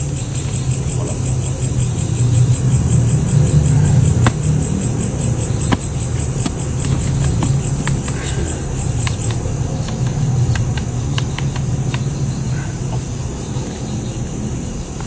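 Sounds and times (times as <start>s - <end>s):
night insects trilling: 0.0s - 15.0s
sharp clicks: 8.9s - 12.1s.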